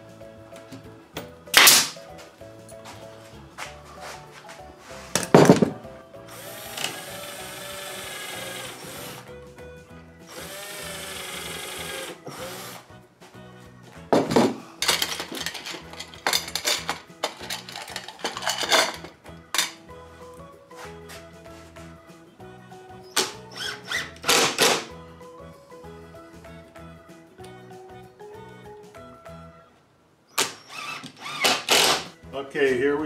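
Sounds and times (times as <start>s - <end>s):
air stapler firing: 1.5s - 2.0s, 23.2s - 24.9s, 30.4s - 32.1s
knocks and metallic clatter: 5.1s - 5.9s, 14.1s - 19.8s.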